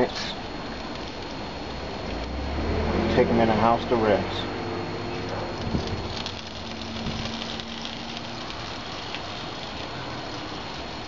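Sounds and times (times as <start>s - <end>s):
sauce sizzling on grill: 0.0s - 3.2s, 5.8s - 11.0s.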